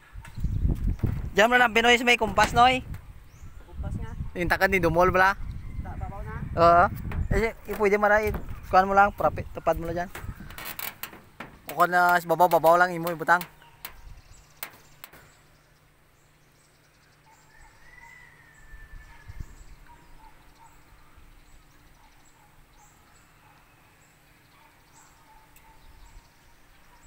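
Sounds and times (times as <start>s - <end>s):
faint bird chirps: 13.4s - 27.0s.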